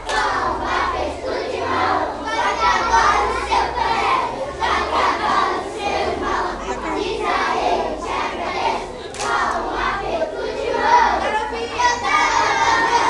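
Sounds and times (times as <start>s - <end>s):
children singing and chanting: 0.0s - 13.0s.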